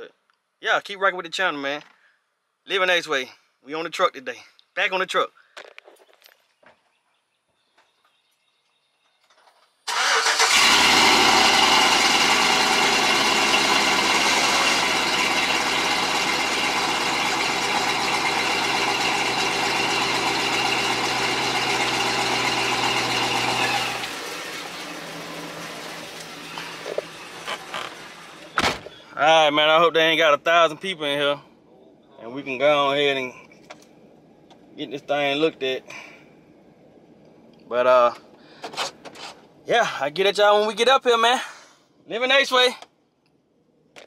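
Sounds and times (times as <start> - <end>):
truck engine starting and idling: 9.8 - 29.4.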